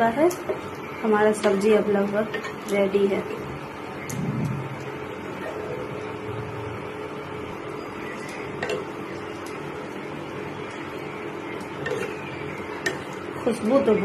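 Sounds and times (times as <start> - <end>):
steady background hum: 0.0 - 14.0
spatula scraping and tapping pan: 11.6 - 13.1.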